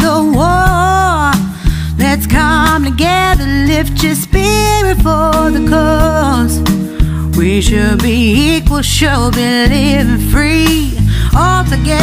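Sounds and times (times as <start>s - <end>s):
song with singer: 0.0s - 12.0s.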